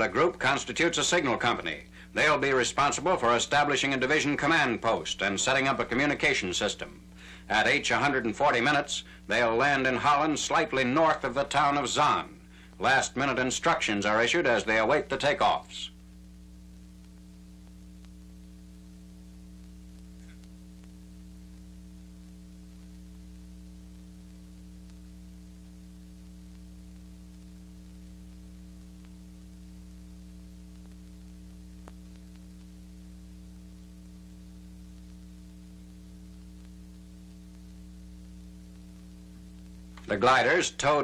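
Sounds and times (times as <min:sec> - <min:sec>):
mains hum with hiss: 0:00.0 - 0:41.0
faint click: 0:19.6 - 0:21.0, 0:30.7 - 0:32.7.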